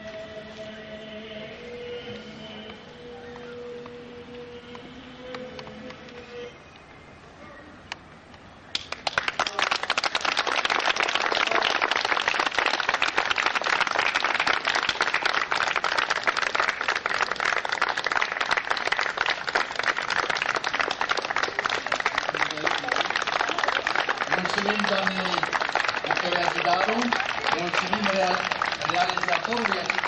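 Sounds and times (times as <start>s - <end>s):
audience applause: 8.7s - 30.0s.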